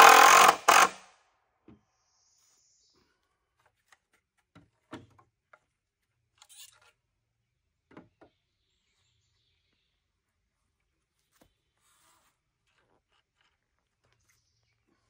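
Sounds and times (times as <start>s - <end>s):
tool scraping: 0.0s - 1.0s.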